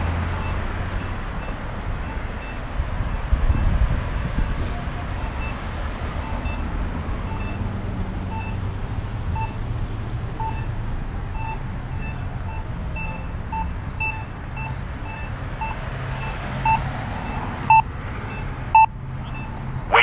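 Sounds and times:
street traffic: 0:00.0 - 0:20.0
short electronic beeps: 0:11.4 - 0:20.0.

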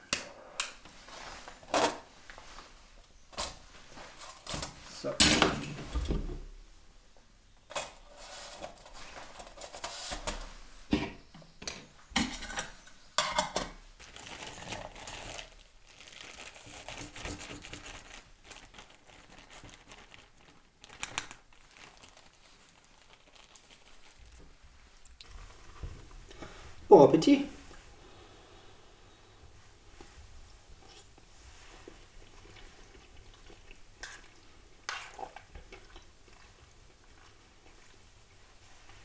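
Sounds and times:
food packaging crinkling: 0:14.0 - 0:26.4.

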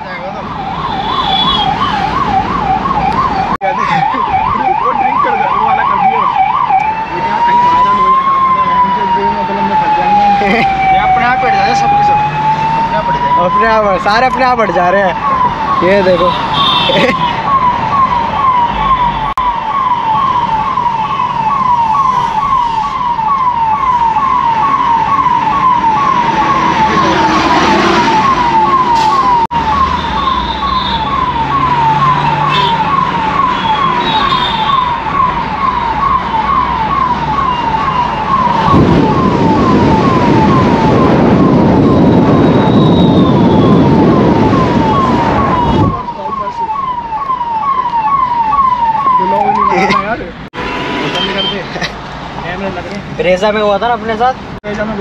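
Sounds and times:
traffic: 0:00.0 - 0:55.0
police siren yelping: 0:00.2 - 0:50.3
wind noise on microphone: 0:37.8 - 0:46.1.

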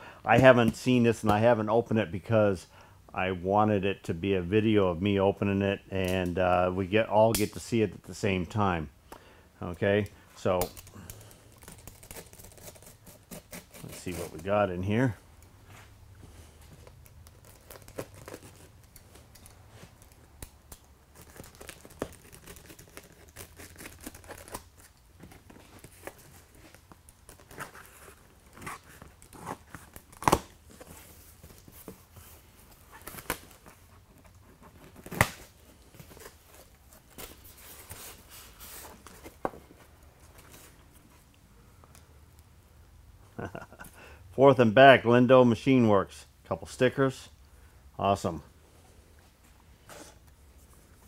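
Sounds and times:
packing tape tearing: 0:10.6 - 0:14.5, 0:16.8 - 0:31.9, 0:32.7 - 0:39.4.

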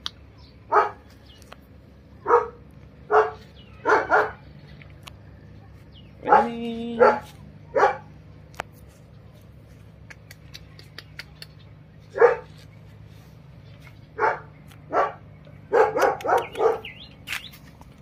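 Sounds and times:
puppy barking: 0:00.7 - 0:01.1, 0:02.2 - 0:04.4, 0:06.2 - 0:08.1, 0:12.1 - 0:12.6, 0:14.2 - 0:17.1.

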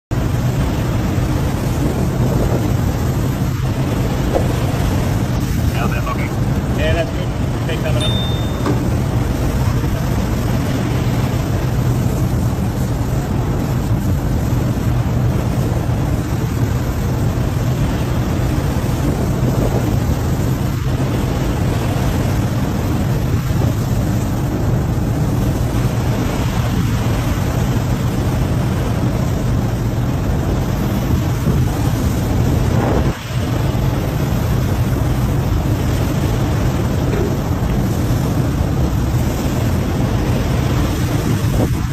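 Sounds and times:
low machinery drone: 0:00.1 - 0:41.9
sea water rushing against hull: 0:00.1 - 0:41.9
wind on microphone: 0:00.1 - 0:41.9.

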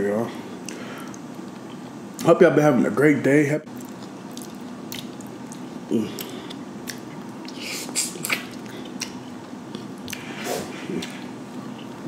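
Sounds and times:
wet biting and chewing: 0:03.7 - 0:11.9.

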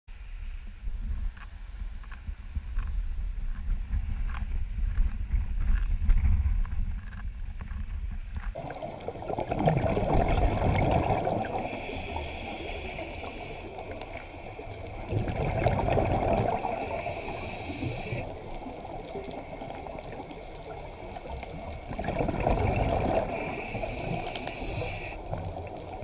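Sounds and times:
underwater gurgling: 0:08.5 - 0:26.0.

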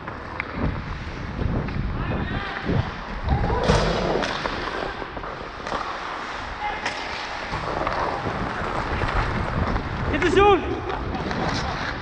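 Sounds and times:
skates scraping on ice: 0:00.0 - 0:12.0
wind on microphone: 0:00.5 - 0:05.7, 0:07.5 - 0:12.0.

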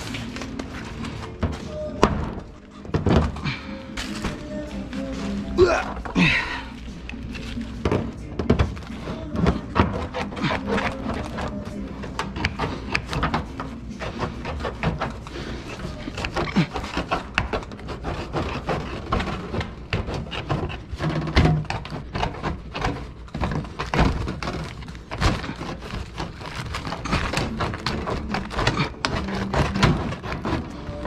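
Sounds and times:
foil and plastic crinkling: 0:00.0 - 0:02.8, 0:22.9 - 0:31.0
knocks and thumps: 0:01.3 - 0:04.4.

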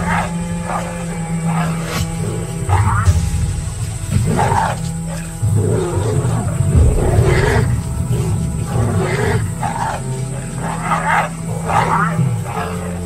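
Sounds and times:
background music: 0:00.0 - 0:13.0
lions growling and snarling: 0:00.0 - 0:13.0.

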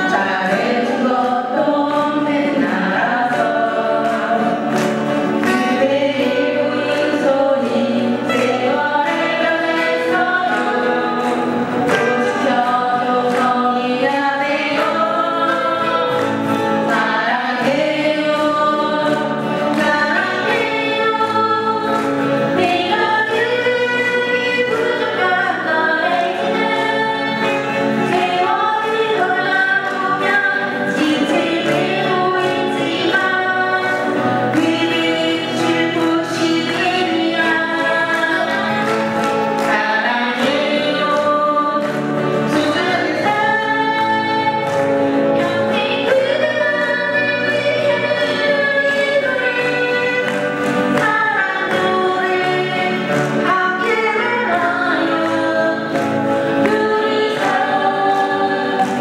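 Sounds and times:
strummed acoustic guitars: 0:00.0 - 0:59.0
women singing together: 0:00.0 - 0:59.0.

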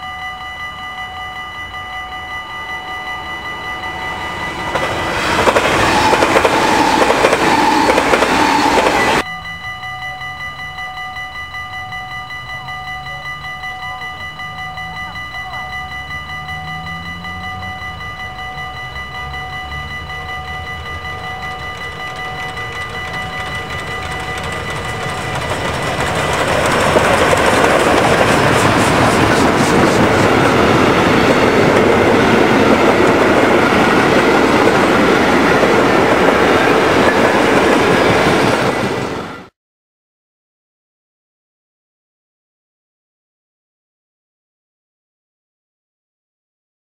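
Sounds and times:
level crossing bell ringing: 0:00.0 - 0:39.4
coaches rattling over rails: 0:01.3 - 0:09.3, 0:11.9 - 0:39.5
steam train rolling past: 0:01.7 - 0:09.3, 0:13.9 - 0:39.5.

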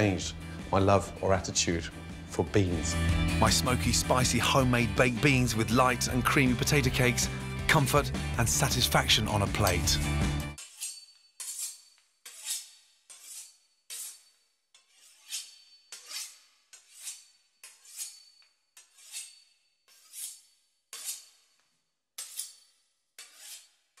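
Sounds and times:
knife sawing through crisp pastry: 0:10.6 - 0:21.6, 0:22.2 - 0:24.0.

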